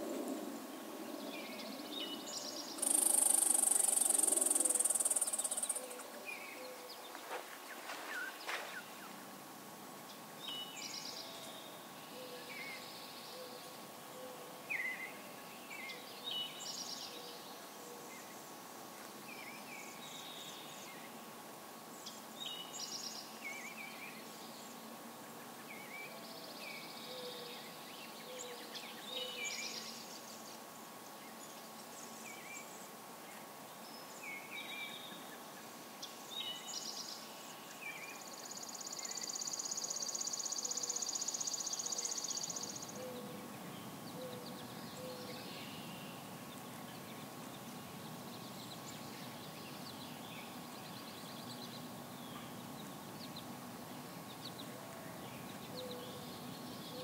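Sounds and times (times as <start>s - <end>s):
faint outdoor background: 0.0s - 57.0s
songbirds singing: 0.0s - 57.0s
insect trill: 2.4s - 6.0s.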